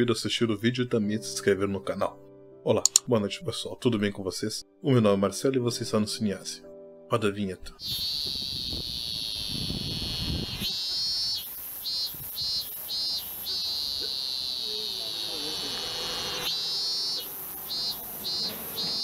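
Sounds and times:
shrill insect chirring: 7.8 - 19.0.

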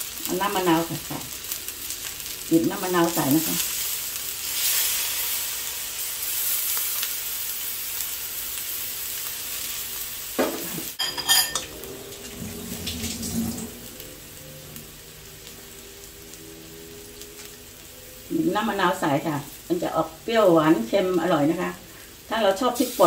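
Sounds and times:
food sizzling in a wok: 0.0 - 23.0
spatula scraping a wok: 10.6 - 13.9.

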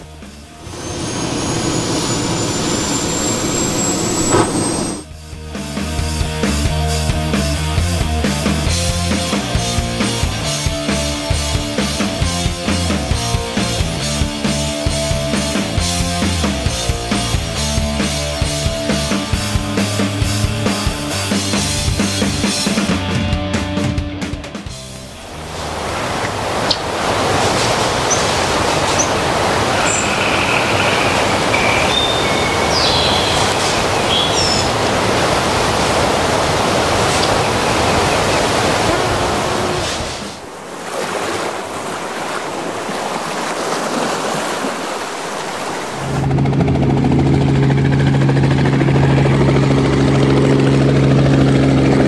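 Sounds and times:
helicopter engine drone: 0.1 - 5.1, 45.9 - 52.0
surf and waves: 0.5 - 5.1, 25.0 - 46.3.

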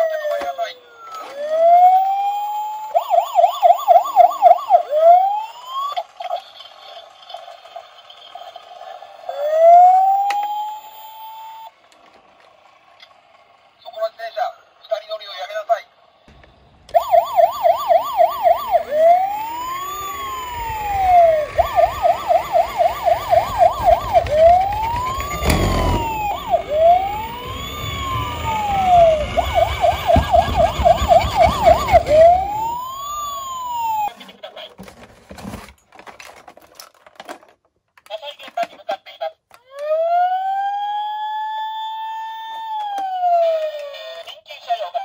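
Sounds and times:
toy electronic siren: 0.0 - 12.0, 16.9 - 34.7, 39.5 - 45.0
toy wheels rolling on wood: 0.3 - 14.1, 16.3 - 40.0, 42.2 - 44.4.

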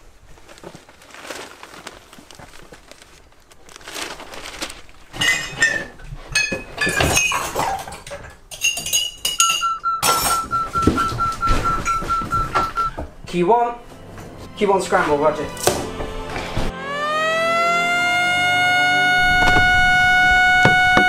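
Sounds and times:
dishes and glasses clinking: 5.2 - 13.0.

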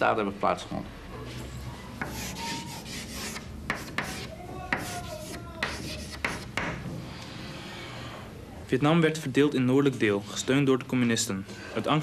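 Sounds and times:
chalk squeak: 1.8 - 6.5
chalk scratching on blackboard: 2.0 - 6.8.

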